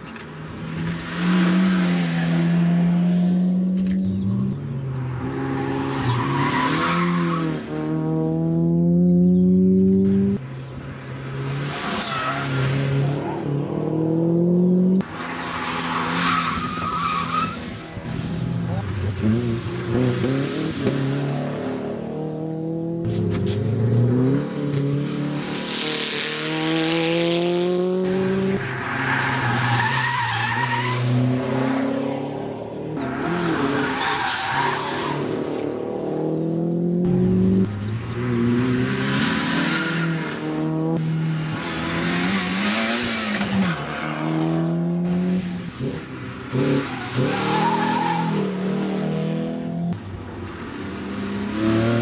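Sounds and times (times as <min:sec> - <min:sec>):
race car engines revving: 0:00.0 - 0:52.0
tyre squeal: 0:11.8 - 0:12.6, 0:15.6 - 0:17.8, 0:46.8 - 0:48.7.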